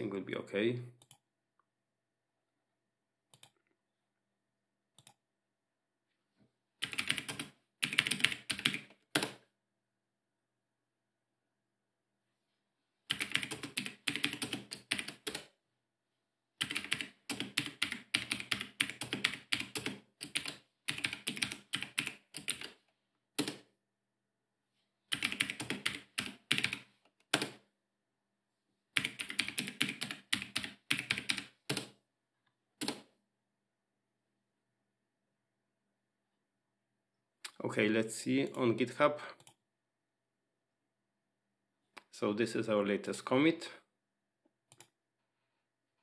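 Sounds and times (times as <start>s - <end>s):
fast typing on keyboard: 6.8s - 9.4s, 13.1s - 15.5s, 16.6s - 22.8s, 23.4s - 23.7s, 25.1s - 27.6s, 29.0s - 31.9s.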